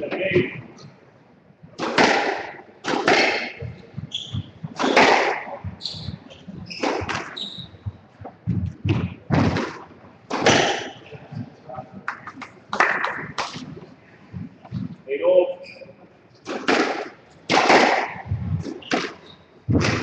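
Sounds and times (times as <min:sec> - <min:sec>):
squash ball hitting rackets and walls: 0:01.8 - 0:11.1, 0:12.1 - 0:13.8, 0:16.4 - 0:20.0.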